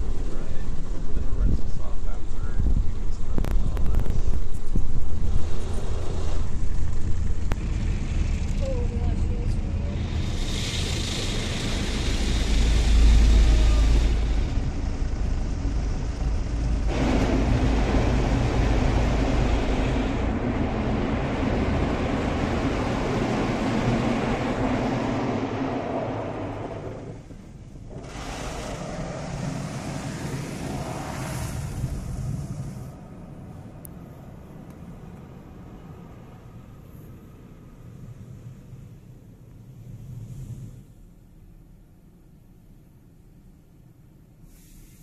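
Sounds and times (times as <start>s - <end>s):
water spray: 9.8s - 14.6s, 27.9s - 33.0s, 44.5s - 45.0s
car wash brushes scrubbing: 27.9s - 33.0s.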